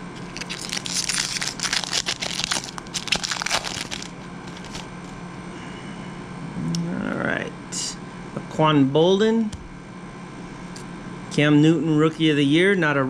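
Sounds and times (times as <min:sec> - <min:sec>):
foil wrapper crinkling and tearing: 0:00.0 - 0:05.2.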